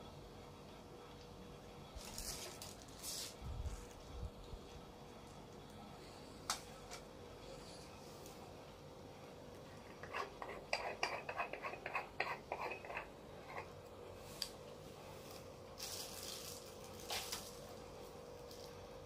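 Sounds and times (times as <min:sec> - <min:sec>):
plastic packaging rustling: 0:02.0 - 0:04.0, 0:15.3 - 0:18.8.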